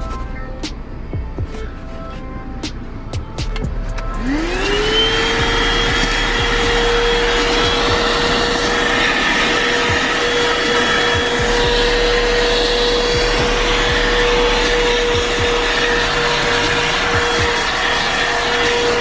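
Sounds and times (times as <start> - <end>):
handheld vacuum cleaner running: 4.2 - 19.0.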